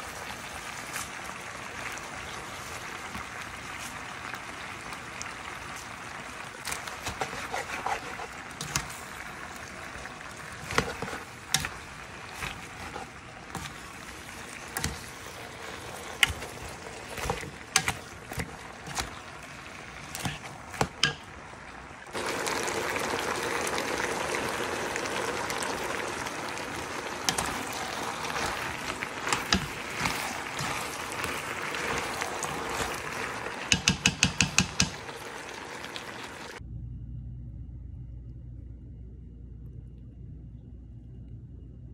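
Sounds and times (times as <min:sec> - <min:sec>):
vegetables sizzling in oil: 0:00.0 - 0:36.6
utensil scraping a pan: 0:06.7 - 0:09.2, 0:10.5 - 0:21.2, 0:27.2 - 0:35.2.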